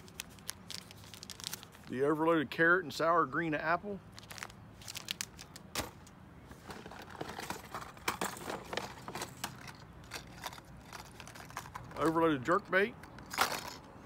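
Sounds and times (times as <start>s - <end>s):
plastic packaging crinkling: 0.0s - 1.9s, 4.1s - 5.7s.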